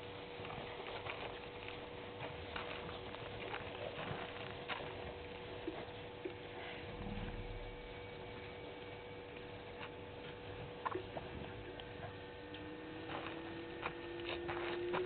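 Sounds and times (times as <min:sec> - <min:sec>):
faint steady hum: 0:00.0 - 0:15.0
faint rising whine: 0:05.8 - 0:15.0.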